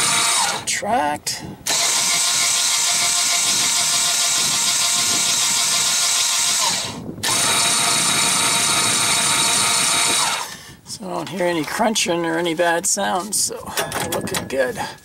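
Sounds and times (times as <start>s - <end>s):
electric jack motor whining: 0.0s - 0.7s, 1.6s - 10.6s.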